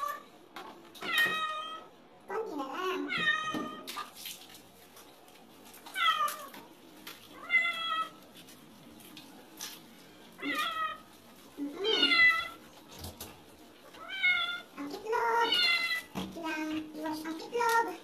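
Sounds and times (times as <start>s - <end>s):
cat meowing: 11.8s - 12.6s, 15.4s - 16.1s.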